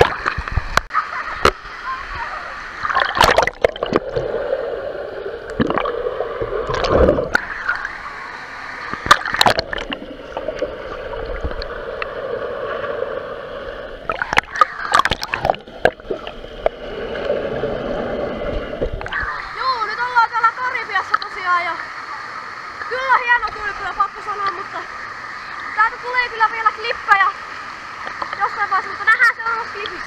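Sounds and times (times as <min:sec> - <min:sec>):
muffled underwater gurgling: 0:00.0 - 0:08.0
sharp water splashes: 0:02.8 - 0:04.5, 0:05.4 - 0:08.1, 0:08.7 - 0:12.1, 0:14.0 - 0:17.3.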